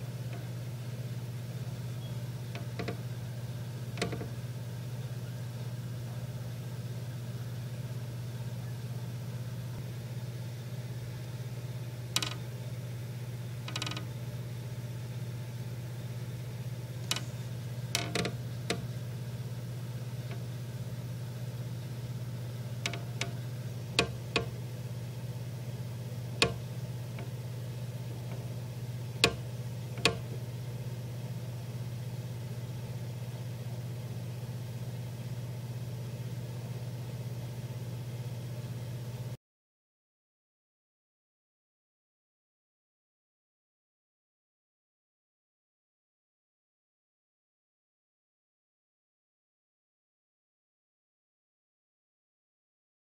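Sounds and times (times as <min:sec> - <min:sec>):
sharp clicks and knocks: 0:02.5 - 0:03.1, 0:04.0 - 0:04.4, 0:12.1 - 0:12.5, 0:13.6 - 0:14.1, 0:17.0 - 0:18.9, 0:22.8 - 0:24.6, 0:26.4 - 0:27.4, 0:29.2 - 0:30.4.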